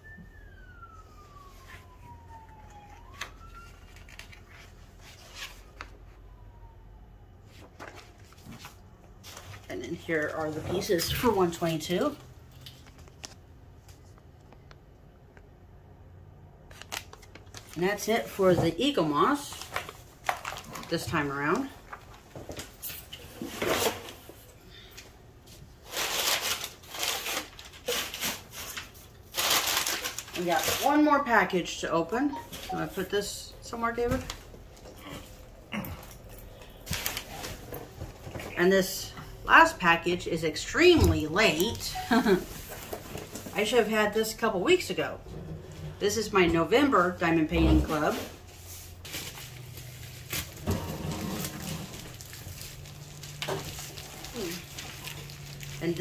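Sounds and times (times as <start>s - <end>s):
distant siren wailing: 0.0s - 8.0s
magazine pages rustling: 1.2s - 6.3s, 7.4s - 14.2s, 16.7s - 24.4s, 25.6s - 31.2s, 36.4s - 38.6s, 48.0s - 56.0s.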